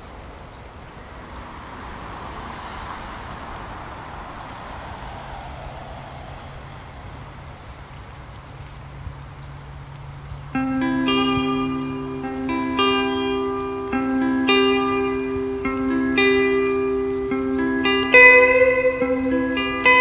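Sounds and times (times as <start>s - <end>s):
rumbling traffic noise: 0.0s - 20.0s.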